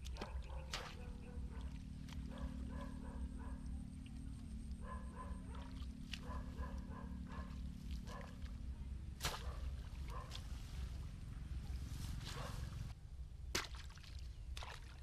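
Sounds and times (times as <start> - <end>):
hoe blade striking ground: 9.2 - 9.7.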